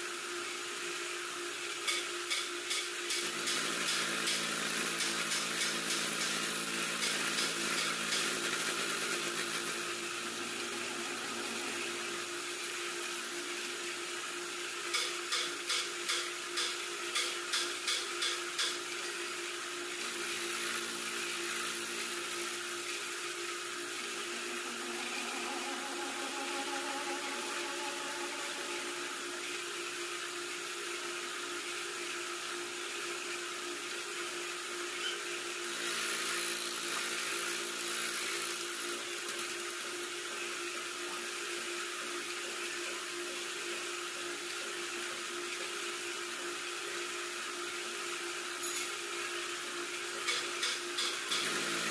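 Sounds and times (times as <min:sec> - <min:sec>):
boring machine cutting metal: 0:01.9 - 0:13.2, 0:19.9 - 0:30.0
machine humming: 0:03.1 - 0:15.5, 0:18.6 - 0:31.3.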